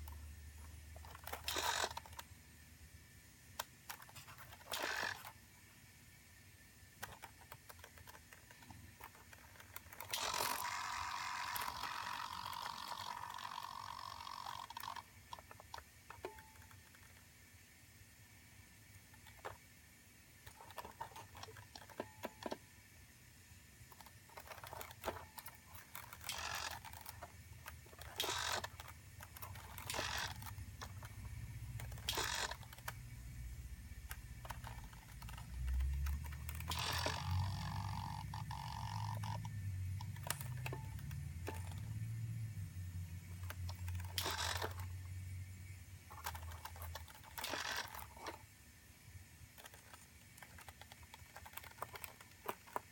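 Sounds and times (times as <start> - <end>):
servo whirring: 8.4 - 15.6, 23.9 - 31.2, 31.8 - 33.0, 34.1 - 41.9, 43.3 - 44.9
small relay clicks: 23.8 - 33.3, 33.9 - 42.3, 43.0 - 45.2, 49.6 - 52.9.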